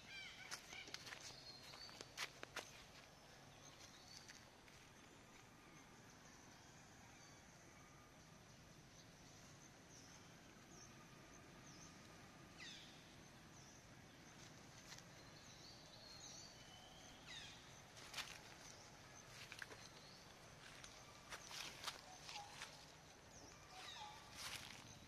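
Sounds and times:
dry leaves rustling: 17.9s - 19.8s, 20.6s - 25.0s.

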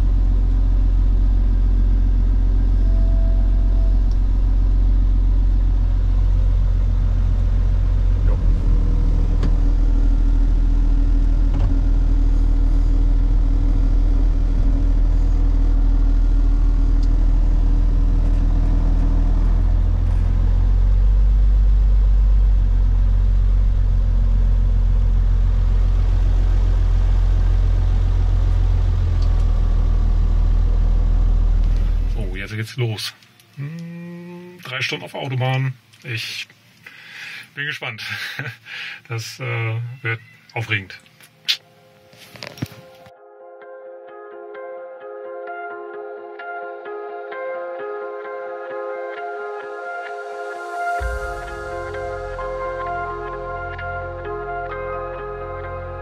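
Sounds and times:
diesel truck engine droning: 0.0s - 32.6s, 49.2s - 56.0s.

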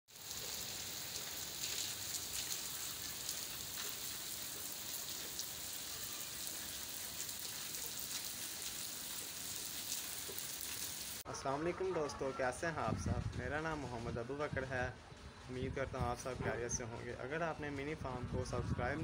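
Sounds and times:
light rain hissing: 0.1s - 11.2s
raindrop ticks: 0.2s - 5.8s.

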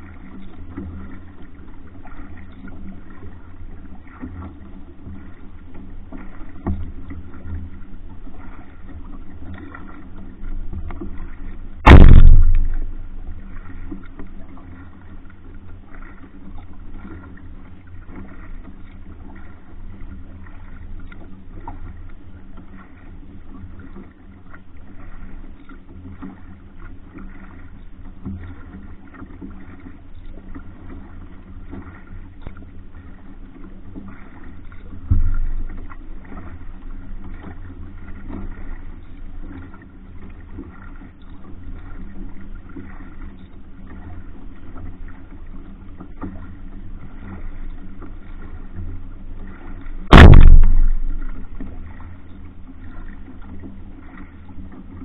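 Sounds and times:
paddle strokes in water: 0.0s - 55.0s
steady low rumble: 10.9s - 15.4s, 34.8s - 37.8s, 49.7s - 53.3s
loud thump: 11.8s - 13.1s, 35.1s - 35.6s, 50.1s - 51.6s.

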